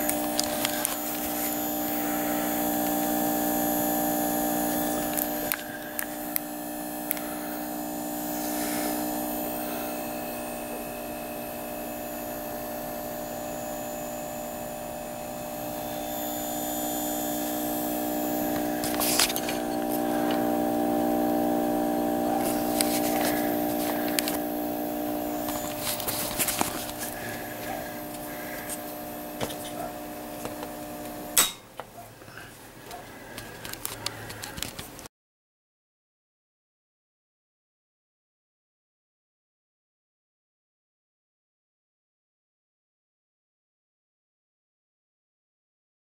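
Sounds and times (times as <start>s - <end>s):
amplifier electrical hum: 0.0s - 31.8s.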